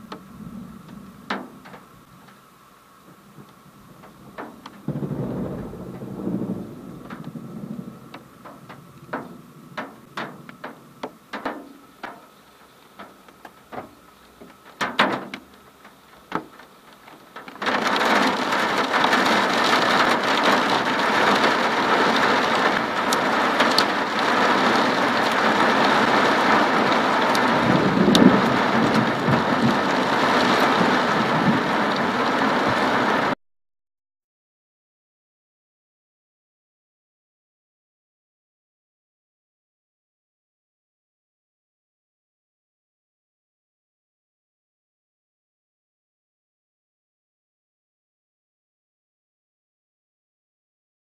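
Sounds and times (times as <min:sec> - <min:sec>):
low rumble: 0:00.0 - 0:02.2
downpour hissing: 0:00.0 - 0:33.4
raindrops ticking on glass: 0:00.1 - 0:02.4, 0:03.4 - 0:05.0, 0:06.9 - 0:33.0.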